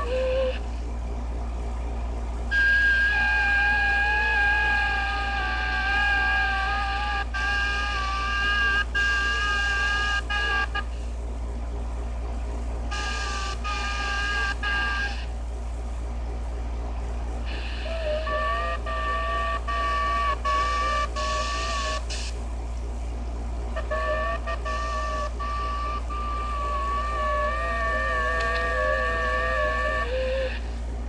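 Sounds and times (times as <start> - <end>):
low hum: 0.0 - 31.0
radio data tones: 6.2 - 27.8.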